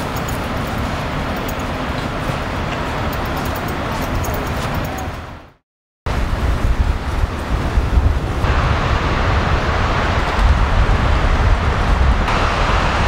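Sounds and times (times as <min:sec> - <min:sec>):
wind buffeting microphone: 0:06.1 - 0:13.0.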